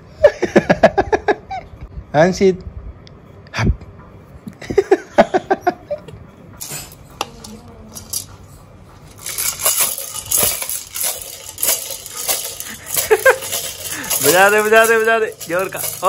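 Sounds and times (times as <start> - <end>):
toy rattle beads clattering: 6.6 - 8.4, 9.1 - 16.0.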